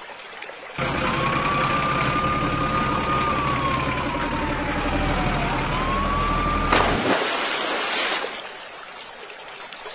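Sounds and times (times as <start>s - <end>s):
truck engine whine: 0.8s - 7.2s
loud splash into muddy water: 6.7s - 8.6s.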